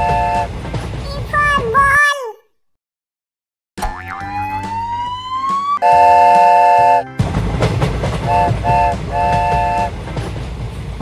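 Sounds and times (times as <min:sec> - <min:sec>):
cartoon train horn toots: 0:00.0 - 0:00.5, 0:05.8 - 0:07.2, 0:08.2 - 0:09.9
train running noise: 0:00.0 - 0:02.0, 0:05.8 - 0:11.0
rising whistle: 0:04.2 - 0:07.1.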